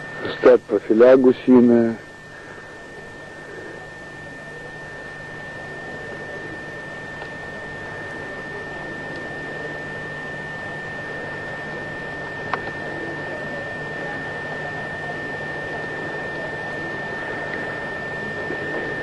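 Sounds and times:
high-pitched whine: 0:00.0 - 0:19.0.

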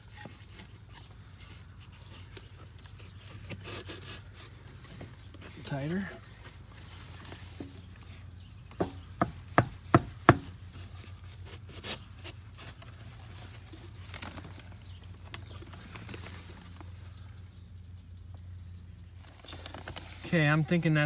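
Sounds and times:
steady low hum: 0:00.0 - 0:21.0
wooden knocks: 0:08.8 - 0:10.5.

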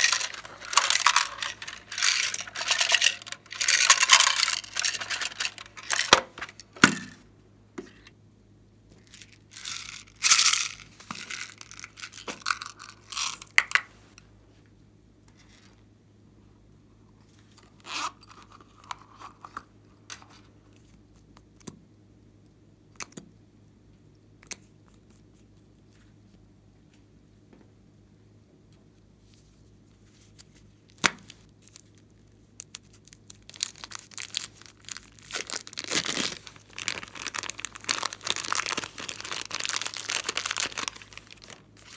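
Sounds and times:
plastic beads rattling and spilling: 0:00.0 - 0:06.8, 0:09.1 - 0:13.7, 0:32.9 - 0:41.9.

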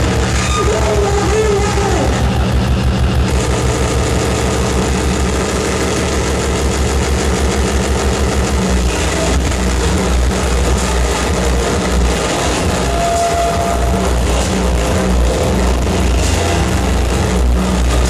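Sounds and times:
distorted noise wall: 0:00.0 - 0:18.0
pulsing low throb: 0:00.0 - 0:18.0
processed voice through microphone: 0:00.4 - 0:02.5.

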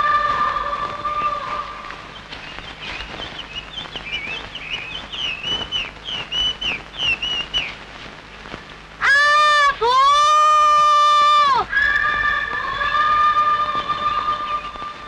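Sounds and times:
small bird chirping: 0:02.1 - 0:07.8.

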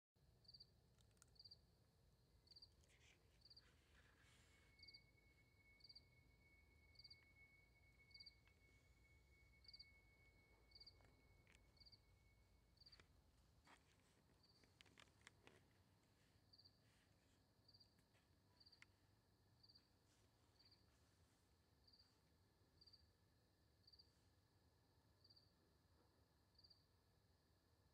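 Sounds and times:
cricket chirping: 0:00.4 - 0:15.6, 0:16.4 - 0:17.0, 0:17.6 - 0:18.9, 0:19.6 - 0:20.0, 0:21.8 - 0:22.2, 0:22.8 - 0:23.2, 0:23.8 - 0:24.1, 0:25.2 - 0:25.6, 0:26.5 - 0:27.0
steady high whine: 0:02.8 - 0:14.1.

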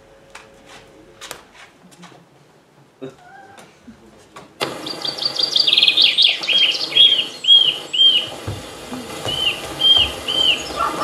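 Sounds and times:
bird trilling and whistling: 0:04.8 - 0:08.3, 0:09.3 - 0:11.0.

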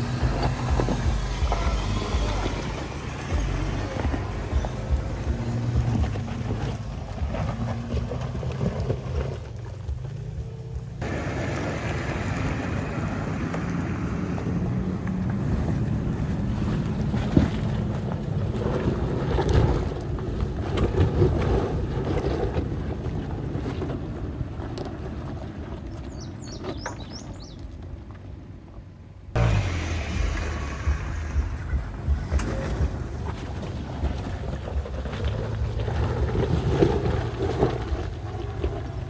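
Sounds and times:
tyres crunching over stones: 0:00.0 - 0:15.5, 0:30.1 - 0:39.0
vehicle engine rumble: 0:00.0 - 0:39.0.

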